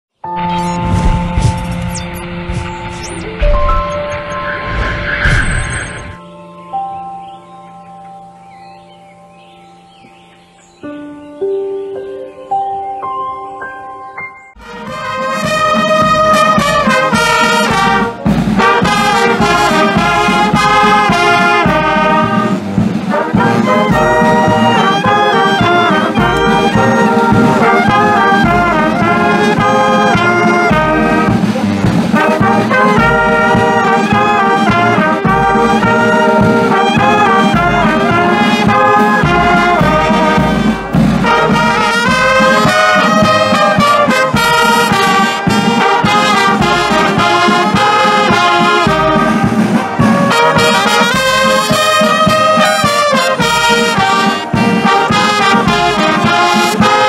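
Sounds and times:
drums keeping a steady beat: 0.7s - 4.0s, 14.6s - 57.0s
brass band playing: 14.6s - 57.0s.

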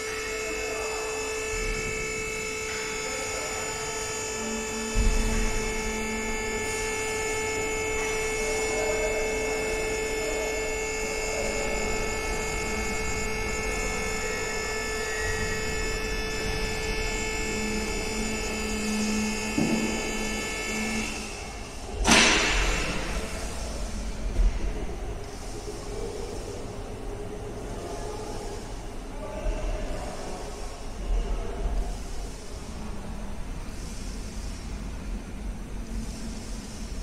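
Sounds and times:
hydraulic pump motor whine: 0.0s - 34.0s.

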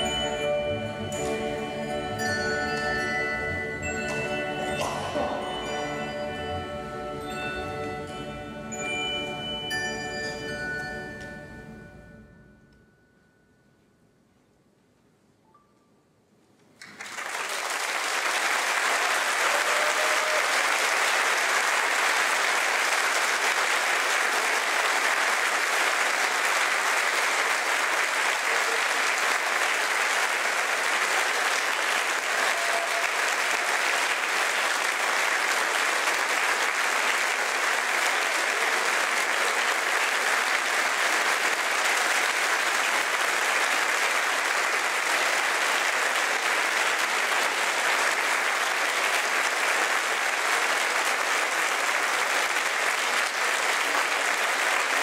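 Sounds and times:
audience applauding: 3.8s - 6.2s, 16.8s - 55.0s.

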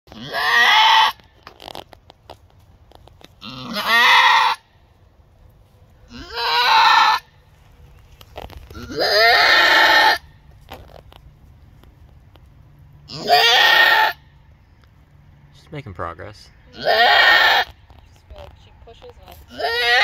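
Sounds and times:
goat bleating loudly: 0.1s - 1.3s, 3.4s - 4.8s, 6.1s - 7.4s, 8.7s - 10.3s, 13.1s - 14.3s, 16.7s - 17.8s, 19.5s - 20.0s.

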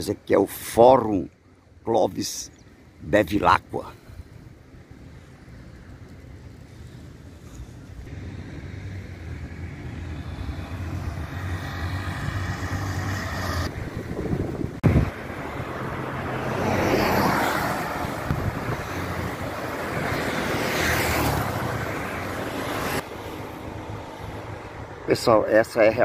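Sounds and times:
cars passing: 2.2s - 26.0s.

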